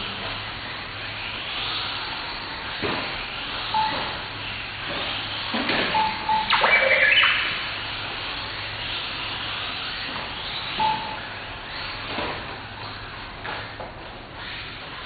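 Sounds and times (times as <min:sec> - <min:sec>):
short beeps: 0:06.0 - 0:07.6
burst of stepped tones: 0:06.5 - 0:07.6.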